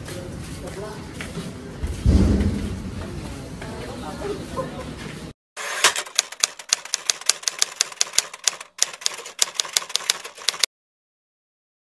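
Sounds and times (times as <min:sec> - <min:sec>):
typewriter key clacks: 0:05.7 - 0:10.7.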